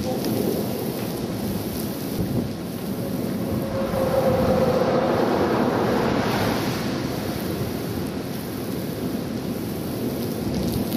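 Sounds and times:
steady rain: 0.0 - 10.9
wind: 0.0 - 10.9
thunder rumbling: 2.2 - 10.9.

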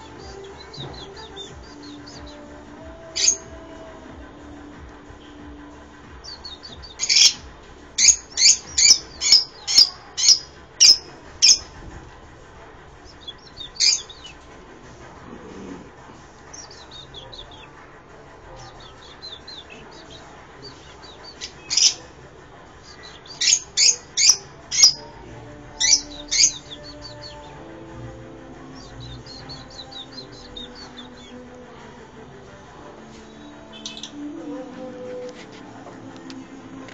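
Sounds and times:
lovebirds chirping: 0.0 - 12.0, 13.0 - 36.9
quiet bird twittering: 5.2 - 11.8, 13.1 - 14.4, 16.4 - 17.8, 18.5 - 22.1, 22.8 - 25.1, 28.7 - 31.4, 33.2 - 34.3.

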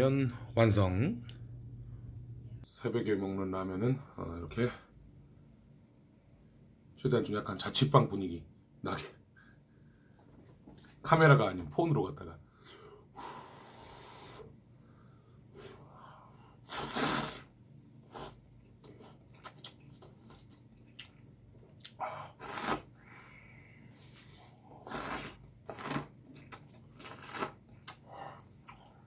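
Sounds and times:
man slurping noodles: 16.6 - 18.4, 22.4 - 22.9, 24.8 - 26.1
faint chewing: 17.9 - 22.8, 25.0 - 29.0.

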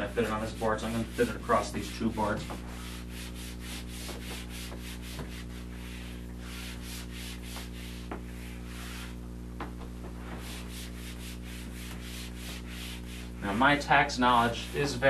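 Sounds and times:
eraser wiping across whiteboard: 0.0 - 9.2, 10.0 - 15.0
low electrical hum: 0.0 - 15.0.

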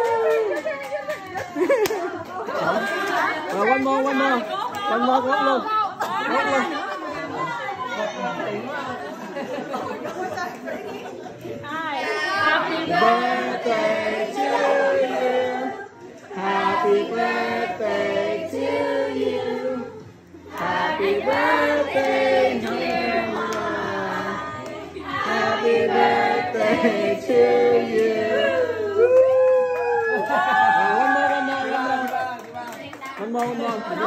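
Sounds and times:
group of people singing together: 11.6 - 29.0.

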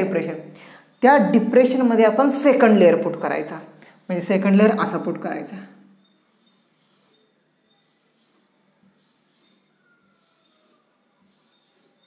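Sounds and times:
marker rubbing on whiteboard: 6.0 - 12.0.

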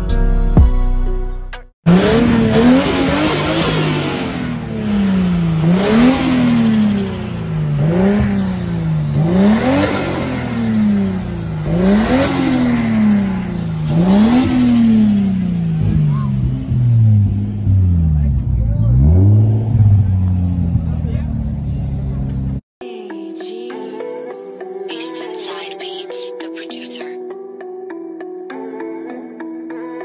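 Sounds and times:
car engine revving: 1.9 - 22.6.

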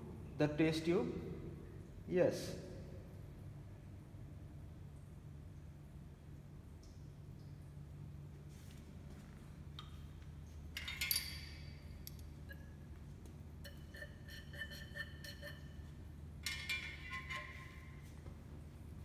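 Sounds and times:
low steady hum: 0.0 - 19.0
glass clinking against glass: 10.8 - 12.7.

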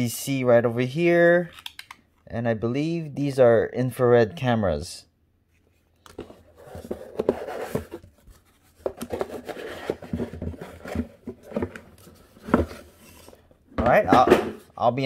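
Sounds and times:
cardboard box rustling and scraping: 6.2 - 13.4.

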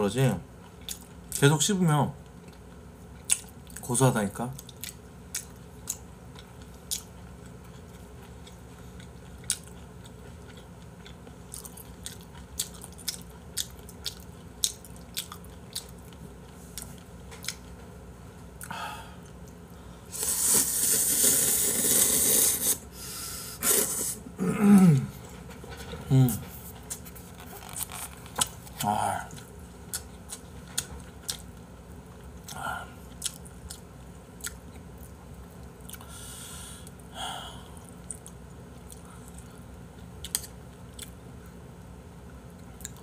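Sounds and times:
chewing with mouth clicks: 0.6 - 1.4, 2.2 - 3.9, 4.5 - 17.8, 26.4 - 36.1, 37.8 - 41.2, 42.5 - 43.0
slurping noodles: 20.1 - 22.9, 23.5 - 24.2.

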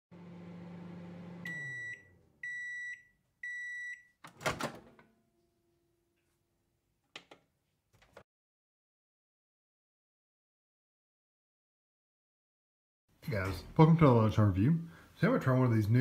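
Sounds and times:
microwave oven humming: 0.1 - 2.6
microwave beeps: 1.2 - 4.2.

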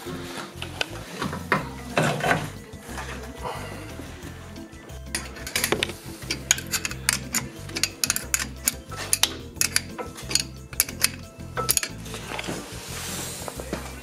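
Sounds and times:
background music: 0.0 - 14.0
metal tool clinks: 5.0 - 12.5
ratchet wrench clicking: 5.1 - 12.5.

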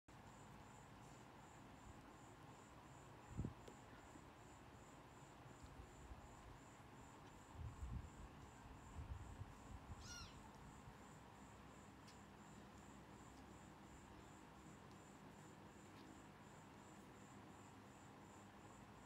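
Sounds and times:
faint high chirp: 10.0 - 10.5.

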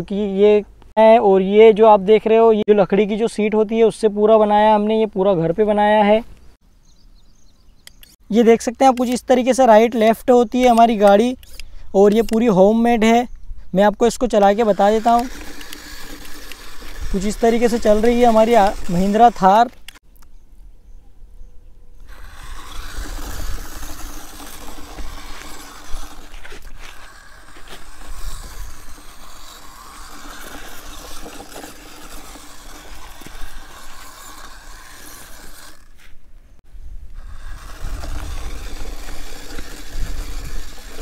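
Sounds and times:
electric motors whirring: 14.2 - 20.0, 22.0 - 36.2, 37.1 - 41.0
wheels crunching over dirt: 14.3 - 20.0, 22.0 - 36.6, 37.2 - 41.0.

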